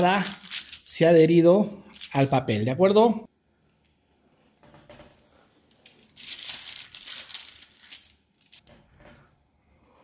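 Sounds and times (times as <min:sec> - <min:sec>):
baking paper crinkling and tearing: 0:00.0 - 0:00.9, 0:05.8 - 0:08.6.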